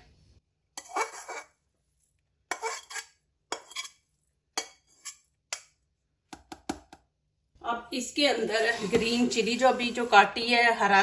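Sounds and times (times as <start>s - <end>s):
metal spatula scraping metal pan: 0.8s - 1.6s, 2.5s - 5.7s, 8.3s - 10.4s.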